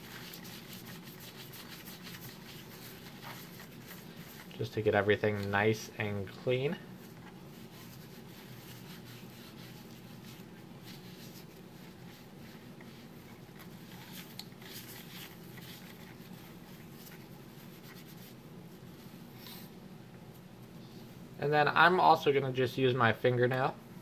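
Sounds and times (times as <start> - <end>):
towel rubbing on plastic mouse: 0.0 - 5.1, 6.9 - 19.2
low steady hum: 0.0 - 24.0.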